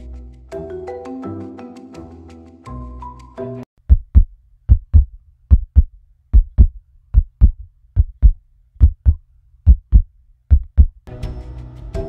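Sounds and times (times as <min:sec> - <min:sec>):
heartbeat thumps: 0:03.8 - 0:11.0.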